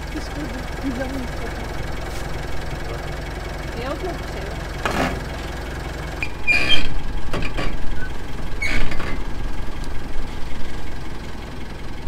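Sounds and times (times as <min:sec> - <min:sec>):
truck engine idling and revving: 0:00.0 - 0:12.0
short squeaks: 0:06.2 - 0:09.3.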